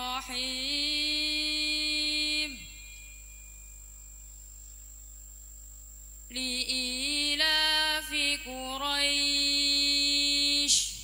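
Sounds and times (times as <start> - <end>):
woman reciting melodically: 0.0 - 2.8, 6.3 - 11.0.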